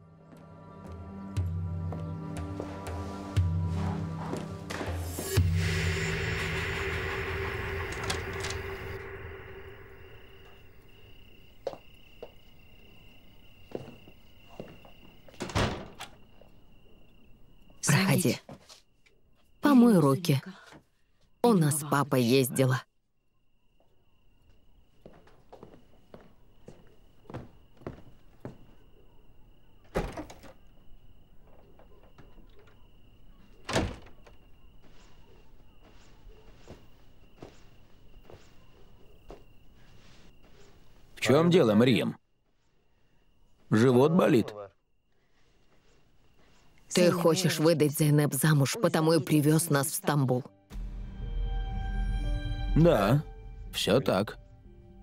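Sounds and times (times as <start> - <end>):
soft footsteps: 0.2 - 5.4, 13.6 - 15.4, 23.8 - 29.0, 34.3 - 41.2, 45.3 - 46.9
cricket trilling: 1.1 - 50.5
door thudding shut: 15.4 - 16.2, 29.8 - 30.6, 33.6 - 34.4.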